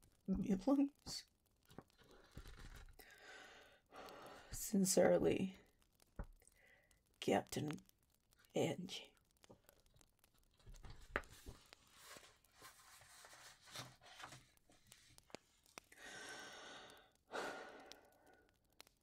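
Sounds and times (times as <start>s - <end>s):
woman breathing: 3.0s - 4.6s, 6.4s - 7.0s, 15.9s - 18.6s
small clicks: 5.6s - 16.0s, 17.0s - 19.0s
faint rustling: 9.4s - 15.9s.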